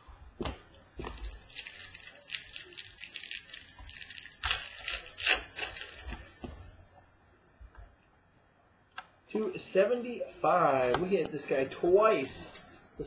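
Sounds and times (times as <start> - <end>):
foil wrapper crinkling and tearing: 0.7 - 6.4.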